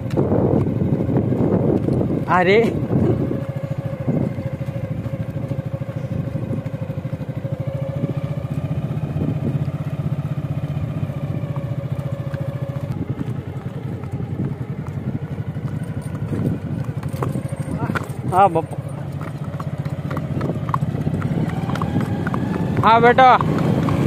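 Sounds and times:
motorcycle engine running: 0.0 - 24.0
steady higher tone: 2.5 - 9.2.

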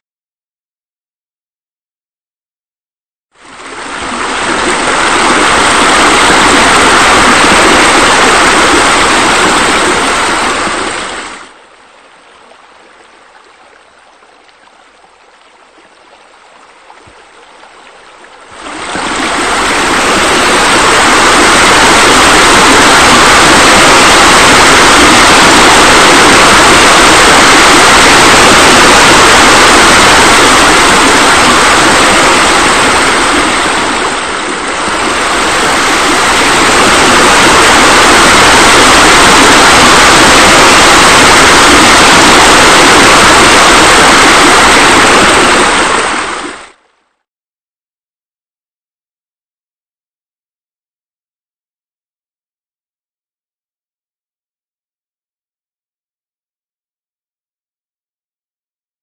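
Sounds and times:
water pouring into pool: 3.4 - 46.8.

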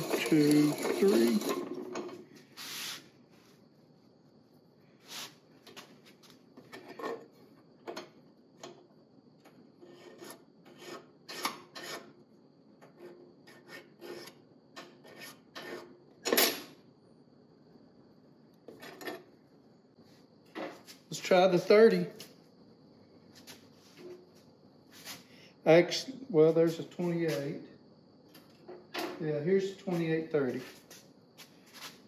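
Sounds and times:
hand file scraping steel: 0.0 - 1.9, 9.8 - 12.2, 12.8 - 16.0.

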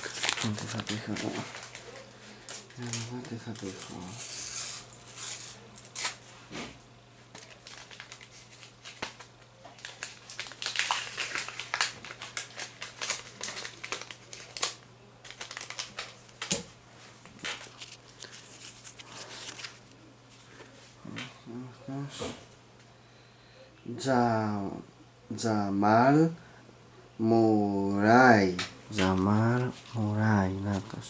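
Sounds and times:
foil packet crinkling: 0.0 - 6.2, 7.3 - 16.6, 17.4 - 20.0.

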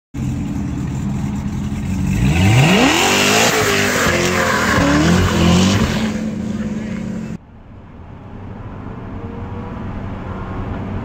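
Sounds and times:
car engine revving: 0.2 - 7.4.

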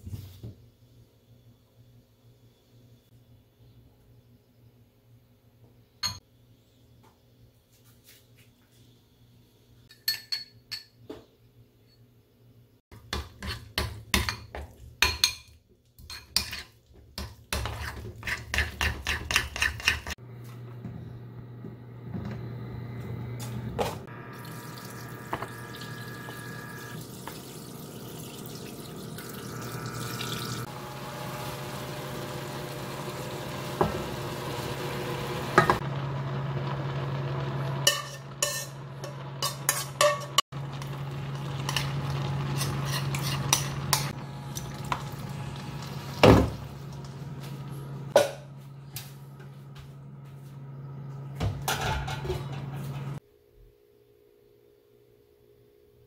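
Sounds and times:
food stir-frying in a pan: 24.2 - 48.1.

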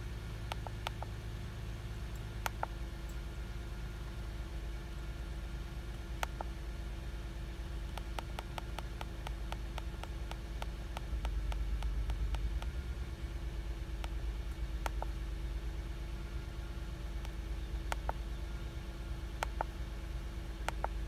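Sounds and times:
low hum in car cabin: 0.0 - 21.0
key clicks on handheld device: 0.5 - 1.1, 2.4 - 2.8, 6.2 - 6.5, 7.9 - 12.8, 14.0 - 15.2, 17.2 - 18.2, 19.4 - 19.8, 20.6 - 21.0.

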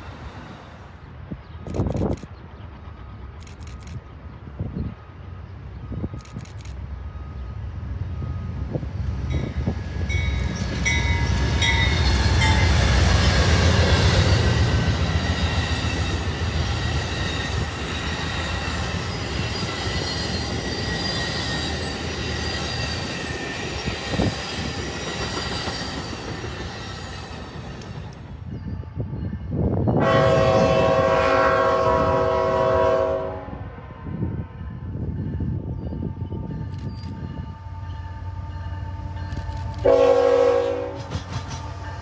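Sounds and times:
train wheels squealing: 0.0 - 30.0, 34.9 - 39.8.

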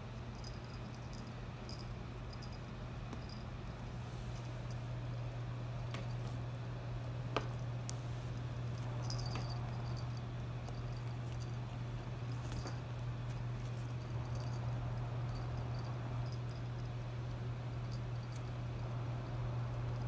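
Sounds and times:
small bell tinkling: 0.0 - 3.5, 8.7 - 11.7, 13.9 - 20.0
steady low hum: 0.0 - 20.0.

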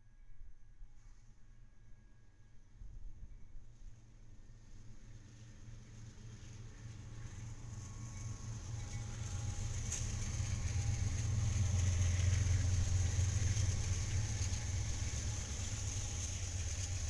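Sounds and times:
locomotive engine rumble: 5.2 - 17.0.

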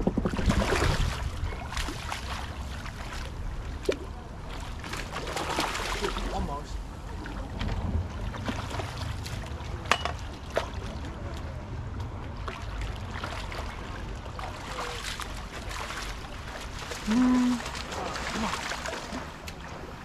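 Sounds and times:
wind rumble on microphone: 0.0 - 4.6, 6.8 - 9.8
fish thrashing in water: 0.1 - 6.4, 12.5 - 19.7.

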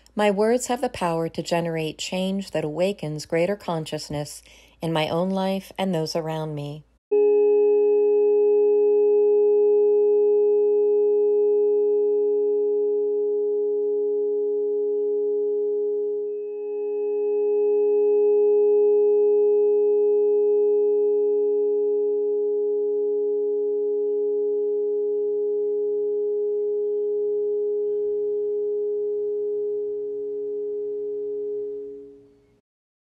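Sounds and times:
faint high tones: 7.1 - 32.6
steady sine tones: 7.1 - 32.6.

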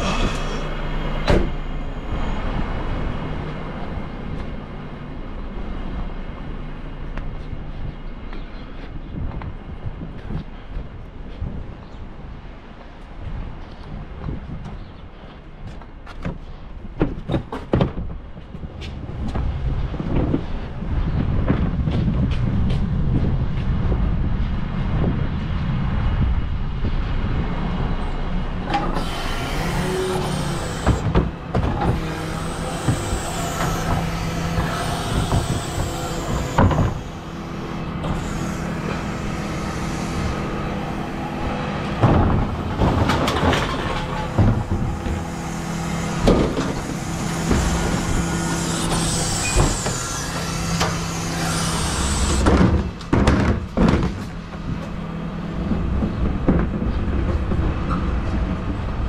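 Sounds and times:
hydraulics working: 0.0 - 10.9, 26.1 - 59.0
truck engine running: 0.0 - 11.6, 22.6 - 59.0.

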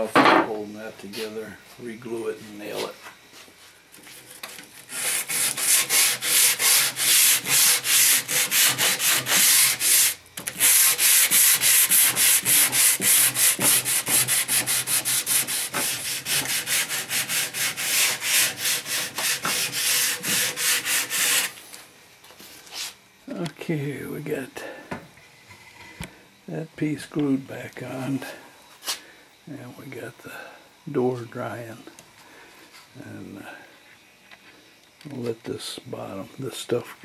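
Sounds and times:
rhythmic rubbing on wood: 4.1 - 21.6.

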